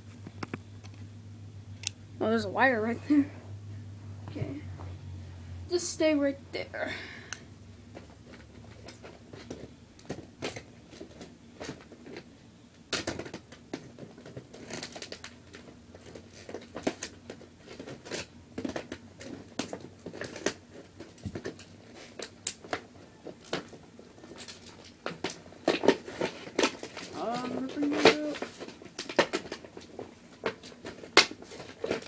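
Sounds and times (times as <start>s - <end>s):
plastic and cardboard rustling: 7.9s - 32.0s.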